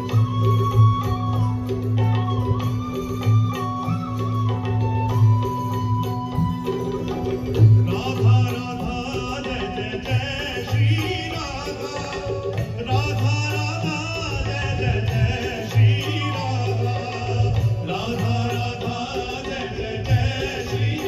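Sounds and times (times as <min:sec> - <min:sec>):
drum beats: 0:00.0 - 0:21.0
man singing: 0:07.8 - 0:21.0.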